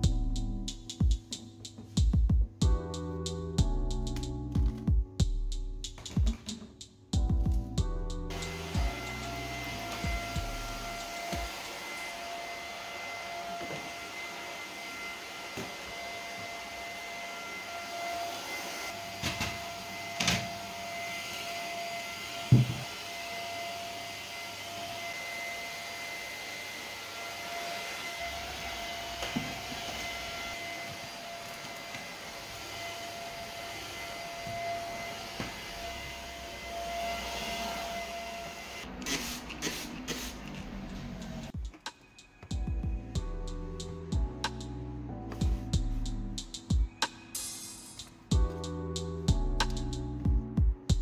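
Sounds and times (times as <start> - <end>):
vacuum cleaner whining hum: 8.3 - 41.8.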